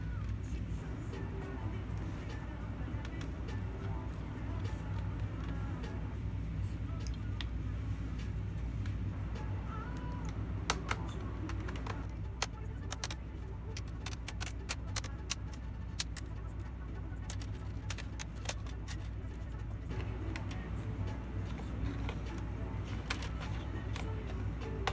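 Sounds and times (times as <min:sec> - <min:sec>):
steady low hum: 0:00.0 - 0:24.9
plastic clips snapping loose: 0:09.9 - 0:16.4, 0:17.2 - 0:19.2.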